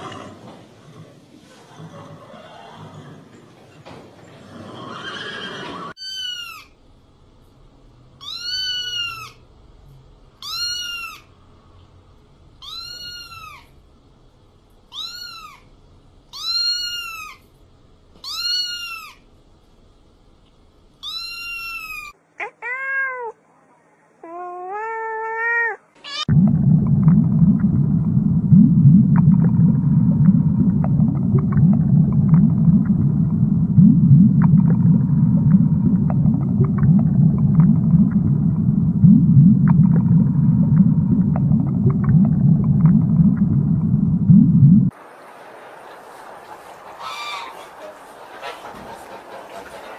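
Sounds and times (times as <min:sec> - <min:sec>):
cat meowing: 0:08.2 - 0:09.4, 0:12.6 - 0:13.7, 0:14.9 - 0:15.6, 0:18.2 - 0:19.2, 0:21.0 - 0:23.4, 0:24.2 - 0:26.3
low underwater rumble: 0:26.3 - 0:49.9.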